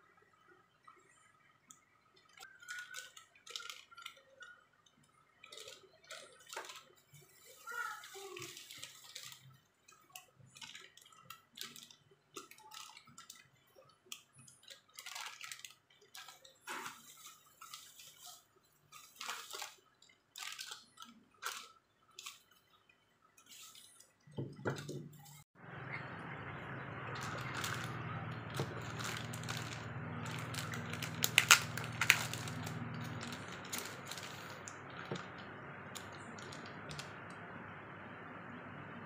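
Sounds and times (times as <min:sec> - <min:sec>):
plastic bubble wrap crinkling: 0:02.4 - 0:04.5, 0:05.4 - 0:09.6, 0:10.5 - 0:22.6, 0:27.1 - 0:37.3.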